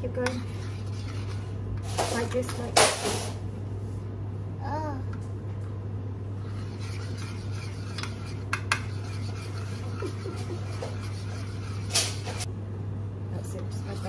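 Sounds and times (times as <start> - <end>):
steady low hum: 0.0 - 14.0
spoon scraping saucepan: 0.1 - 1.6, 6.4 - 12.5.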